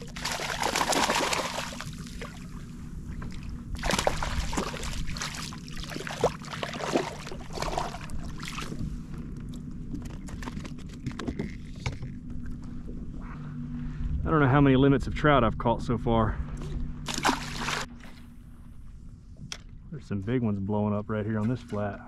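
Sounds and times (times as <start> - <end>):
fish splashing in water: 0.0 - 8.8, 17.1 - 17.9.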